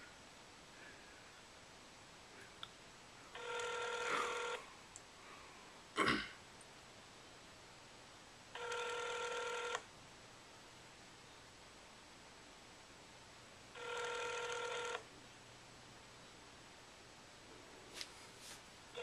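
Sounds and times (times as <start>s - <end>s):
telephone ringback tone: 3.3s - 4.6s, 8.6s - 9.8s, 13.8s - 15.0s.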